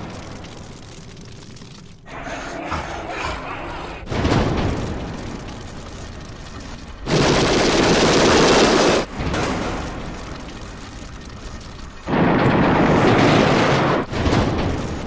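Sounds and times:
automatic gunfire burst: 7.1s - 9.9s.

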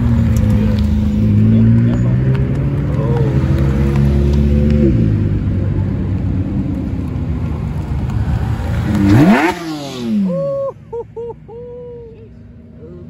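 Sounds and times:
supercar engines driving past: 0.0s - 13.0s
sports car engine revving hard: 8.9s - 10.2s.

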